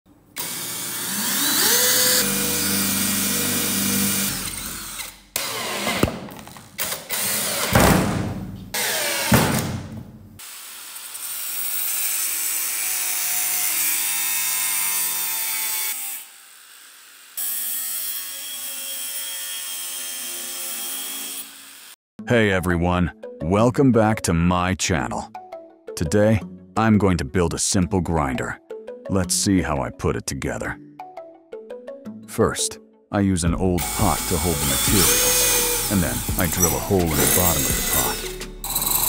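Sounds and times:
angle grinder cutting steel: 0.4s - 7.8s, 8.7s - 9.4s, 10.4s - 22.0s, 33.8s - 39.0s
cordless drill drilling metal: 0.4s - 7.8s, 8.8s - 9.4s, 10.4s - 22.0s, 33.8s - 39.0s
tool bursts and knocks: 5.4s - 10.2s.

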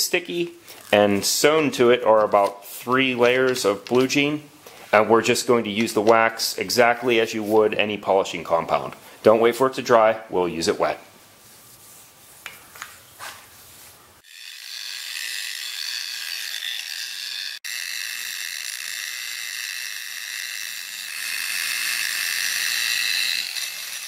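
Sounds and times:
faint handling sounds: 0.4s - 8.0s
angle grinder buffing whine: 14.2s - 24.0s.

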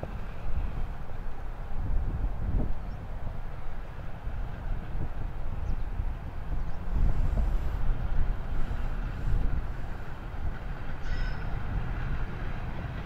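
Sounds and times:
steam locomotive rumbling: 0.0s - 13.0s.

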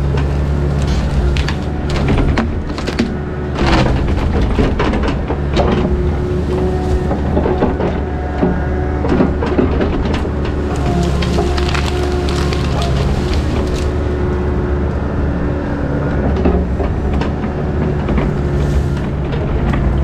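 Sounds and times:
wood cracking and branches snapping: 0.0s - 15.0s
diesel engine running: 0.0s - 20.0s.

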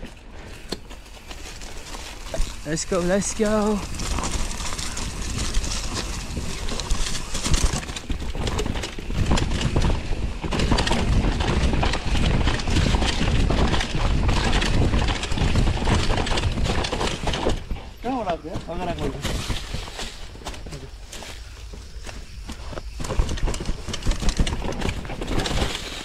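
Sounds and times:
bike rattling: 0.0s - 26.0s
tyres clattering over stones: 0.8s - 26.0s
wind on microphone: 3.7s - 18.0s.

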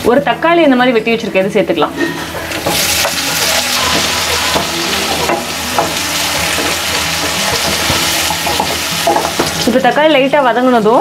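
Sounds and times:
tomatoes sizzling in hot oil: 2.2s - 11.0s.

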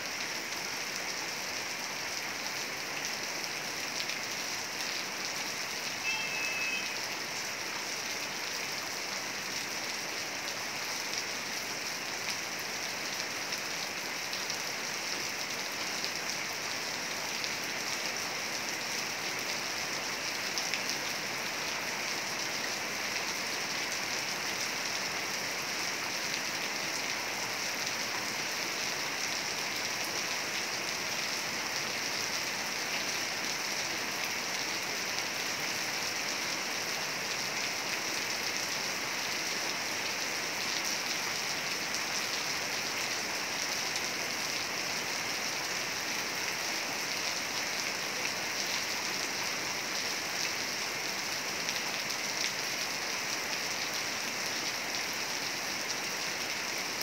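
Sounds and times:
heavy rain falling: 0.0s - 57.0s.

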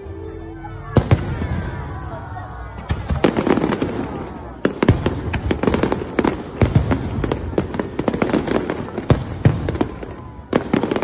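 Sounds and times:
fireworks bursting with bangs: 2.7s - 11.0s.

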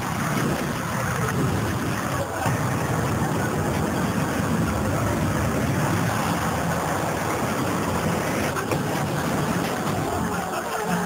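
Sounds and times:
rushing wind whoosh: 0.0s - 10.6s.

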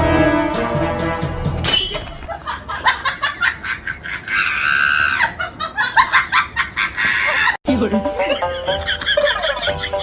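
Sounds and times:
sharp hit: 0.0s - 2.3s.

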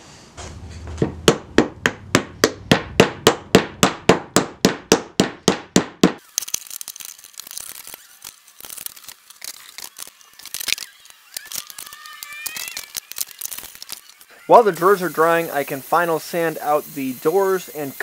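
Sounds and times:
mallet knocking wooden joint: 1.3s - 6.2s.

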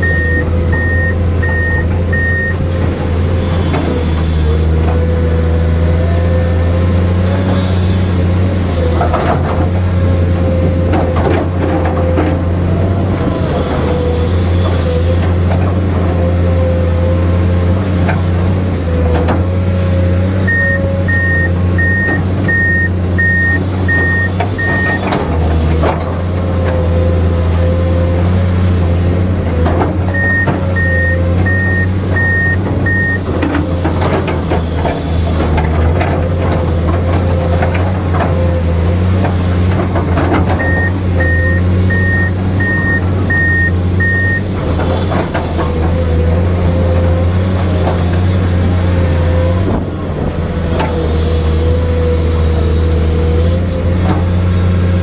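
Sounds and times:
back-up alarm beeping: 0.0s - 2.6s, 20.5s - 25.0s, 30.2s - 33.3s, 40.6s - 44.5s
excavator diesel engine running: 0.0s - 55.0s.

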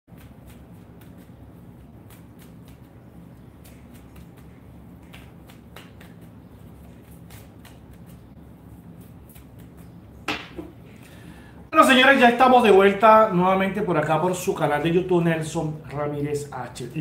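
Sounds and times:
cards being shuffled: 0.1s - 10.7s
low steady hum: 0.1s - 17.0s.

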